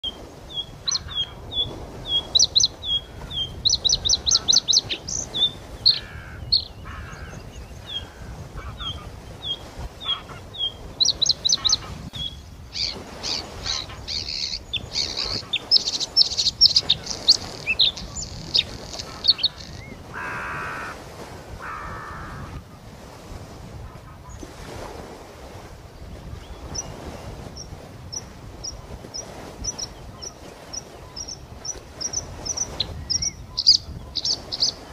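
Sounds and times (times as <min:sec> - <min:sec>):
bird singing high chirps: 0:32.0 - 0:34.8.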